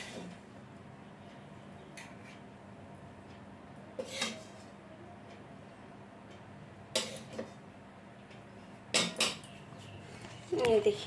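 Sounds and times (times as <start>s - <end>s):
spoon scraping and clinking on pan: 4.0s - 4.6s.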